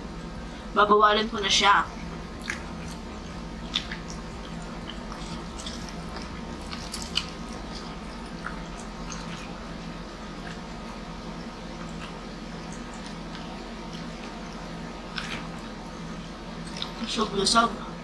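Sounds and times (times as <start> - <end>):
steady low hum: 0.0 - 18.0
wet chewing clicks and smacks: 2.3 - 9.7, 10.3 - 10.9, 11.8 - 15.8, 16.6 - 17.1.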